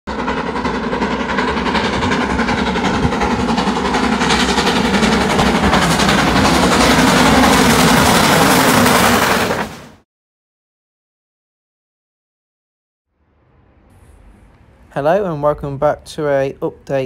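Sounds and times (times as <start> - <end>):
freight train wheels rumbling: 0.1 - 10.0, 13.6 - 17.0.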